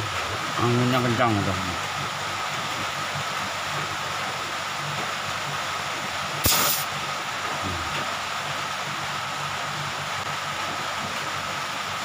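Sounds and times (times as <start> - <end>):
pressurized gas hissing: 6.4 - 6.9.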